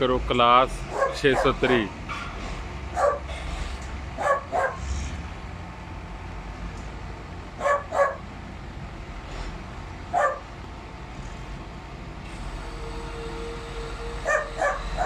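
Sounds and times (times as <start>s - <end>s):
steady low rumble: 0.0s - 12.3s
dog barking: 0.9s - 1.8s, 2.9s - 3.3s, 4.2s - 4.8s, 7.6s - 8.2s, 10.1s - 10.5s, 14.2s - 15.0s.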